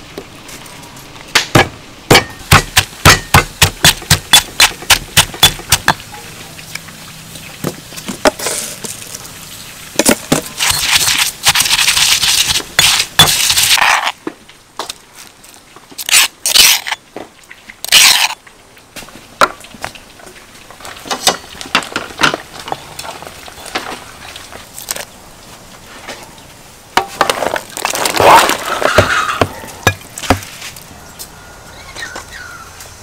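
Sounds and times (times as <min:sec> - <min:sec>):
pestle grinding in mortar: 0:01.5 - 0:06.1, 0:10.0 - 0:14.2, 0:16.0 - 0:17.0, 0:17.9 - 0:18.4, 0:27.0 - 0:30.6.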